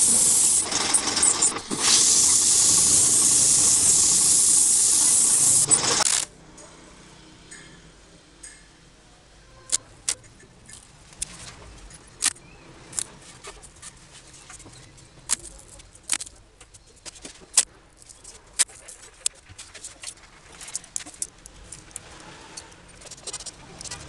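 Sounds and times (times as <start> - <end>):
masking tape crackling off roll: 0.0 - 6.3.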